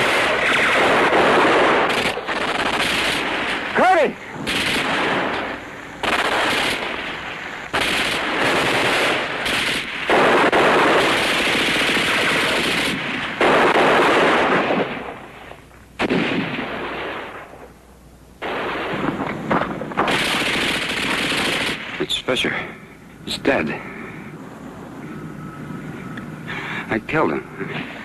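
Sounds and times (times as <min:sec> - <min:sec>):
machine-gun bursts: 0:00.0 - 0:03.3, 0:04.5 - 0:05.2, 0:06.0 - 0:06.9, 0:07.8 - 0:14.7, 0:20.0 - 0:22.0.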